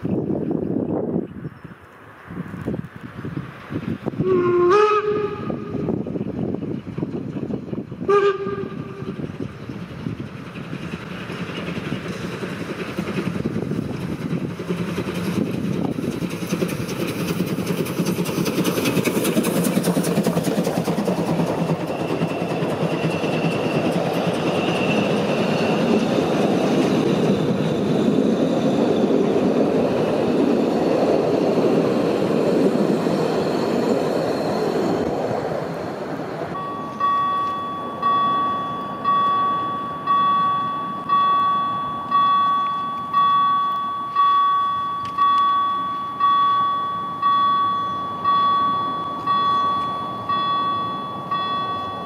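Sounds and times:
steam locomotive working: 0:03.3 - 0:52.0
steam locomotive whistle: 0:04.2 - 0:05.9, 0:08.0 - 0:09.2.

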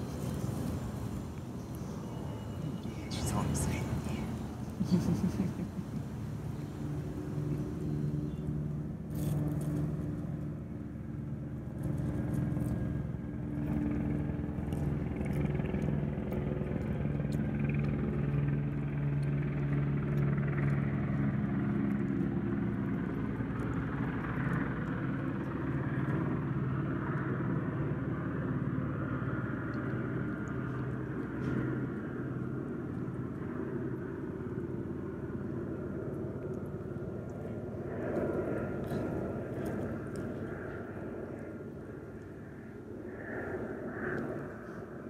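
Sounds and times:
cat chewing clicks: 0:14.6 - 0:27.3.

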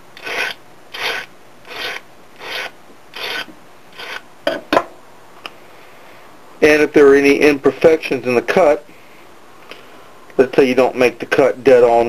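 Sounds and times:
file rasping on metal: 0:00.2 - 0:04.2.

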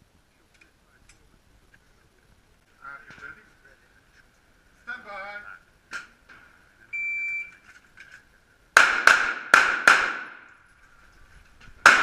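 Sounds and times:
pistol shots echoing indoors: 0:08.8 - 0:10.5.

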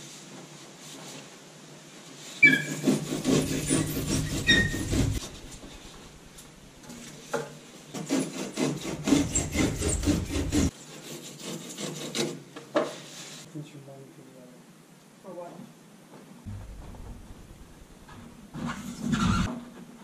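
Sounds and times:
foam board scraping and rasping: 0:02.4 - 0:06.2, 0:07.9 - 0:12.4
foam squeaks: 0:02.4 - 0:06.2, 0:08.9 - 0:10.7, 0:17.6 - 0:19.5.

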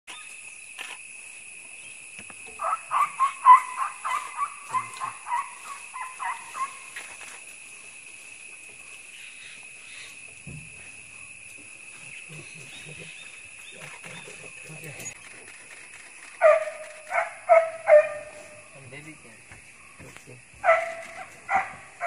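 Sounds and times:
high insect drone: 0:00.1 - 0:22.0.

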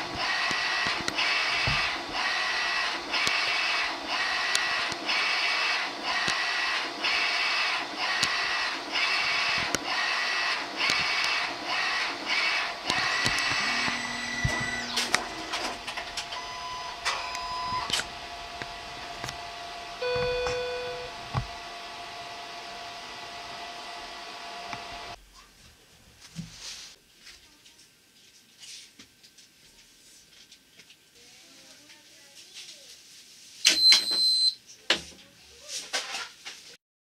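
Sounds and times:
motor whirs and clicks: 0:00.0 - 0:21.8
printer carriage whine: 0:00.0 - 0:25.2.

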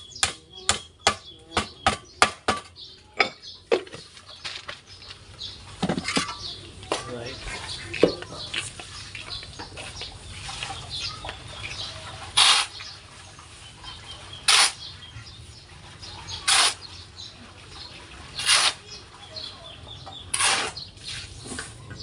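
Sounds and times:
shovel scraping sand: 0:12.3 - 0:12.9, 0:14.4 - 0:14.9, 0:16.4 - 0:16.9, 0:18.4 - 0:18.8, 0:20.3 - 0:21.8.

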